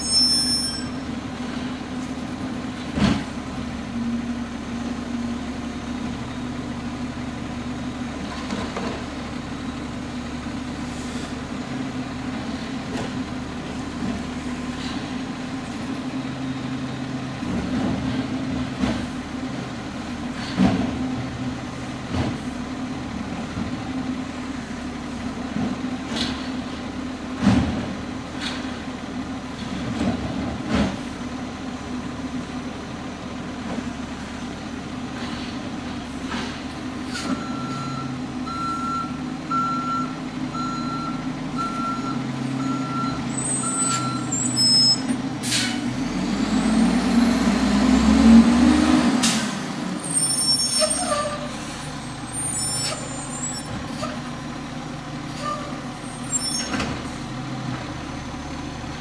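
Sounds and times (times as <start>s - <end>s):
reversing alarm beeping: 0.0s - 1.0s, 37.4s - 45.1s
garbage truck diesel engine running: 0.0s - 59.0s
air brake hissing: 45.4s - 45.8s.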